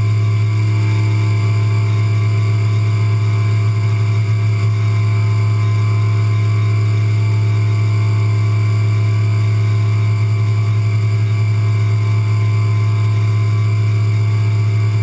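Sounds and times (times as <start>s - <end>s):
milling machine humming: 0.0s - 15.0s.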